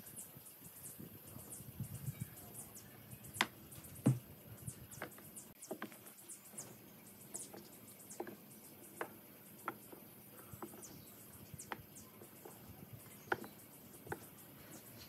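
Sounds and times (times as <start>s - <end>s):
wooden taps and clicks: 7.4s - 8.4s, 9.0s - 11.0s, 11.6s - 14.3s.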